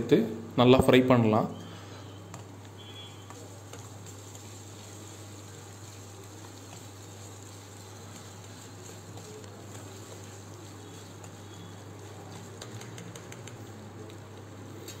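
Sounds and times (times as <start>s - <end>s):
vegetables sizzling in oil: 2.4s - 14.2s.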